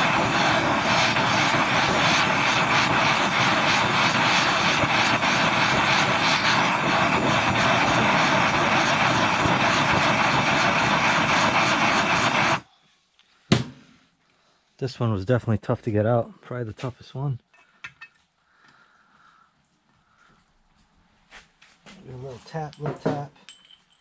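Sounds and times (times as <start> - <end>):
gas torch flame roar: 0.0 - 12.7.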